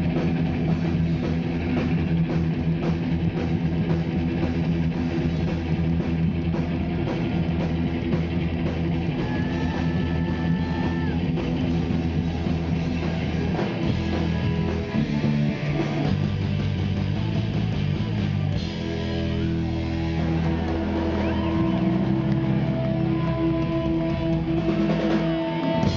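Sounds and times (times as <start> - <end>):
bass guitar: 0.0 - 25.9
distorted electric guitar: 0.0 - 25.9
drums: 0.0 - 25.9.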